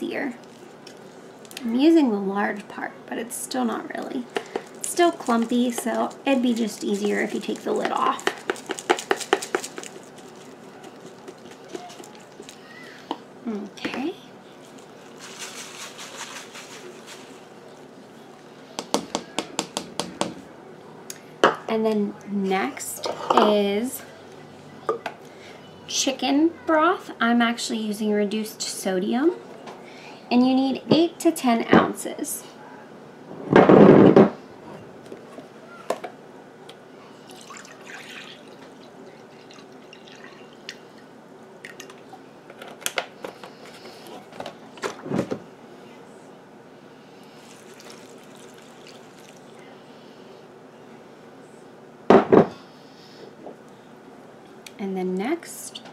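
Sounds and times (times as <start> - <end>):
grated cheese pattering on leaves: 4.8 - 12.6, 14.7 - 17.5.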